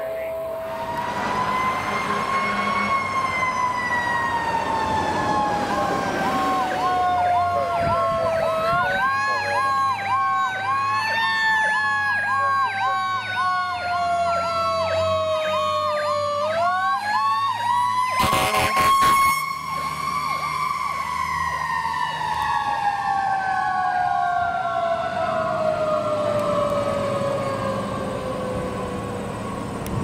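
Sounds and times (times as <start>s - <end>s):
siren wailing in slow sweeps: 0.0s - 29.8s
siren cycling quickly: 4.6s - 22.6s.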